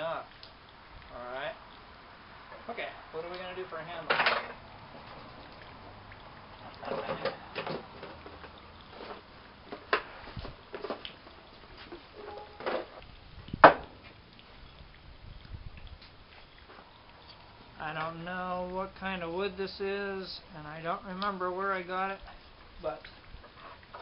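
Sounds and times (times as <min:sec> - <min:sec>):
objects knocking and clattering: 0:04.1 - 0:04.6.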